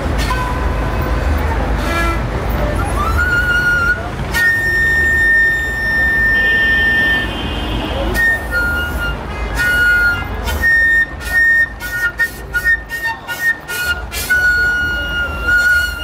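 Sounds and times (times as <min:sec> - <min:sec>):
flute playing high melody: 0:01.8 - 0:16.0.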